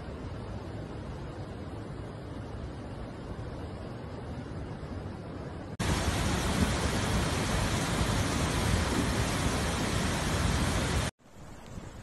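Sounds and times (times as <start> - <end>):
floodwater rushing: 5.8 - 11.2.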